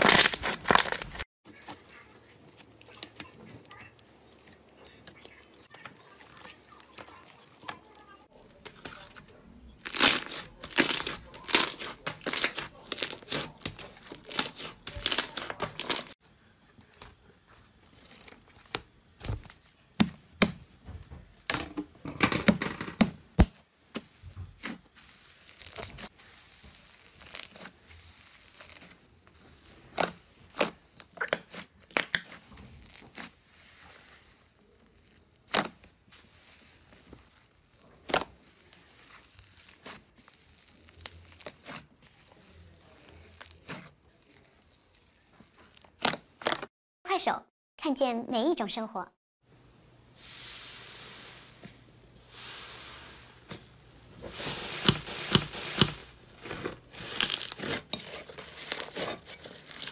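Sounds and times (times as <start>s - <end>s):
slime crackling and popping: 0.0s - 2.0s, 9.8s - 16.2s, 24.6s - 46.6s, 54.7s - 59.9s.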